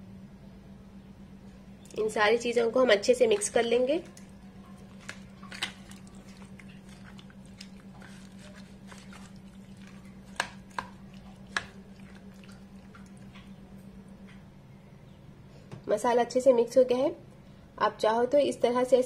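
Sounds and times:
steady low hum: 0.0s - 19.0s
wet squishing of mixing: 2.7s - 13.9s.

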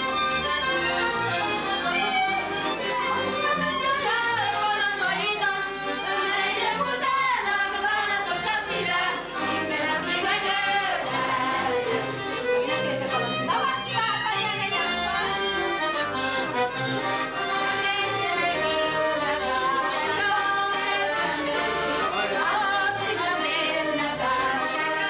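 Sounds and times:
accordion and fiddle dance tune: 0.0s - 25.0s
voices singing along: 3.8s - 15.6s, 17.3s - 25.0s.

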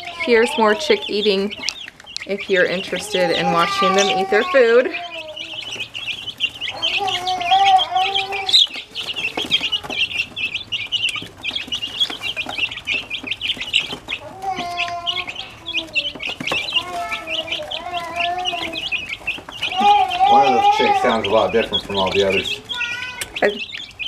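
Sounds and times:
baby chicks peeping: 0.0s - 24.0s.

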